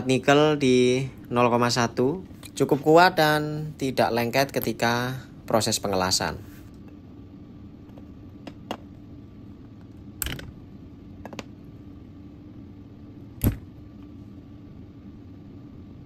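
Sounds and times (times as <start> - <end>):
low steady hum: 0.0 - 16.0
sharp snap: 13.4 - 13.7.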